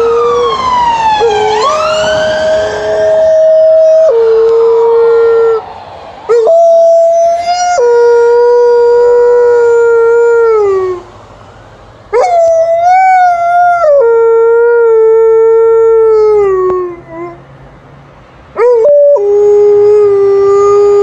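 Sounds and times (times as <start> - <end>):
dog howling: 0.0 - 5.6, 6.3 - 11.0, 12.2 - 17.4, 18.6 - 21.0.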